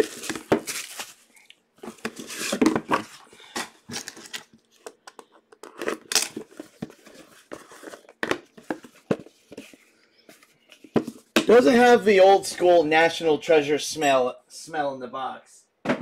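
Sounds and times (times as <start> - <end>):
cardboard boxes rustling and knocking: 0.0 - 1.2, 1.8 - 4.4, 5.6 - 11.5.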